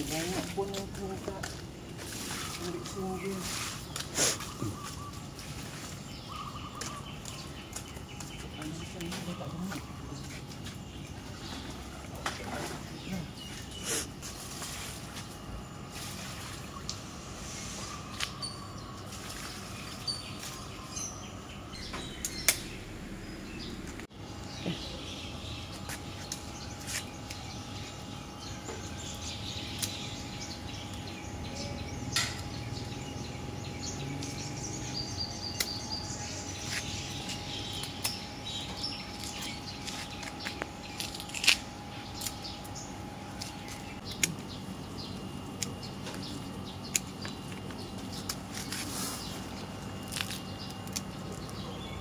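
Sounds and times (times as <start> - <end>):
outdoor background noise: 0.0 - 52.0
pruning shears snipping stems: 39.2 - 42.5.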